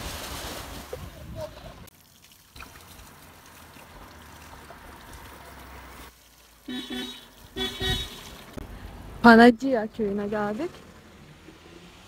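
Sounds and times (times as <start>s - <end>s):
water pouring from spout: 1.9s - 6.8s
car horn toots: 6.7s - 8.3s.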